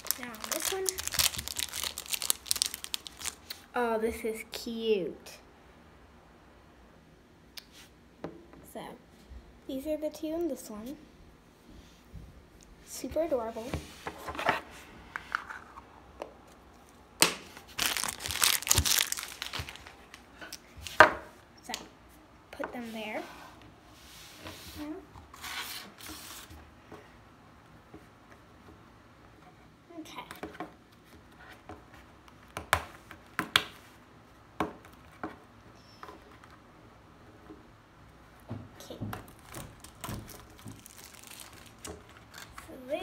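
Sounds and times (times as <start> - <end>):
plastic packaging crinkling: 0.0 - 3.7, 16.8 - 20.8, 39.2 - 42.6.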